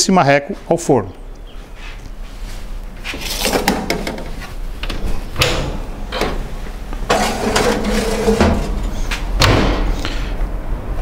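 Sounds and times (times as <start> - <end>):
metal pan scraping on rack: 7.1 - 9.1.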